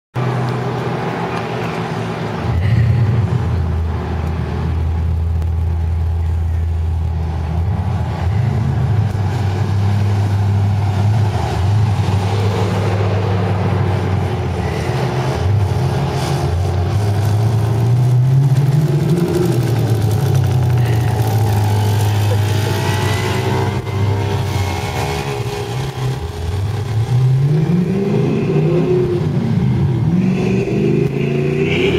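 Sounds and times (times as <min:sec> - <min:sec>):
engine revving: 0:00.2 - 0:31.9
low engine drone: 0:00.2 - 0:31.9.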